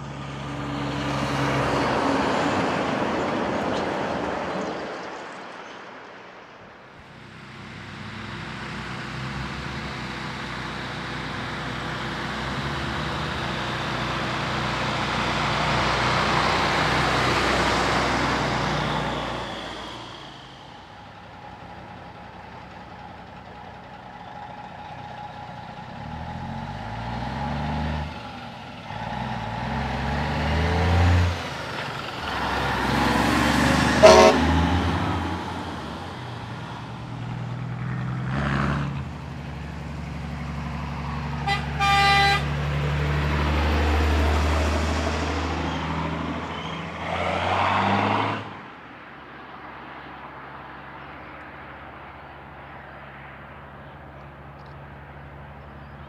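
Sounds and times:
heavy diesel trucks passing: 0.0 - 56.0
truck horn toots: 33.9 - 34.6, 41.4 - 42.6.

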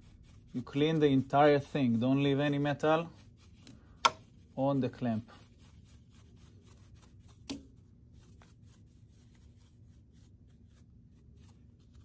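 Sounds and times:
bristle brush sweeping metal chips: 0.0 - 7.5.

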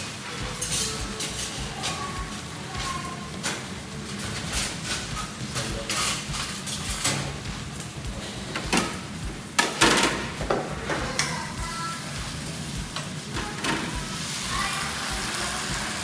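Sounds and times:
metal utensils clattering: 0.0 - 11.4, 12.9 - 14.2.

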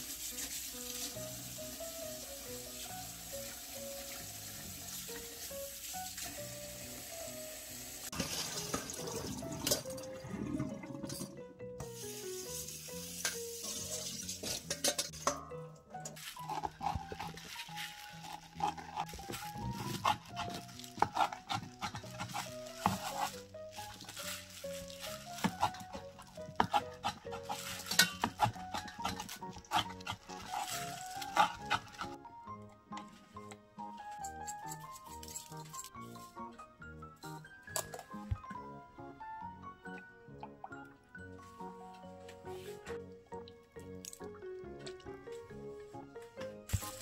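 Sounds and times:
light background music: 0.0 - 47.0
tap water splashing into colander: 8.0 - 9.9.

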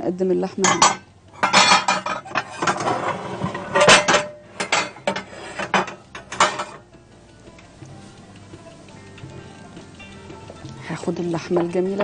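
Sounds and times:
dishes and pans clattering: 0.6 - 6.8.

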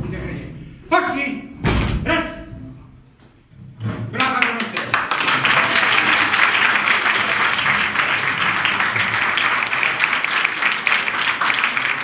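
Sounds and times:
crowd applauding: 4.2 - 12.0.

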